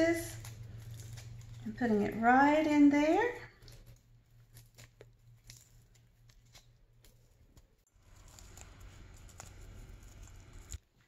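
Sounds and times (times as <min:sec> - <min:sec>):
crisp bacon being torn: 0:00.1 - 0:01.7, 0:03.6 - 0:10.8.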